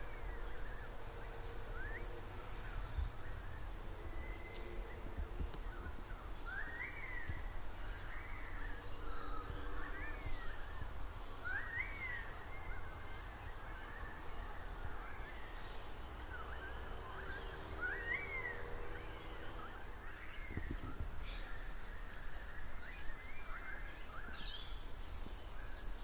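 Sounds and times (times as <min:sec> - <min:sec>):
wind noise on microphone: 0:00.0 - 0:06.4, 0:20.3 - 0:21.8.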